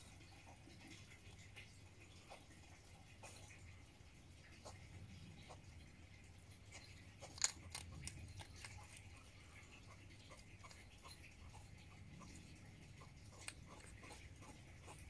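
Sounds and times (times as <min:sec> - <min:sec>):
hedgehog crunching dry food: 0:06.6 - 0:15.0.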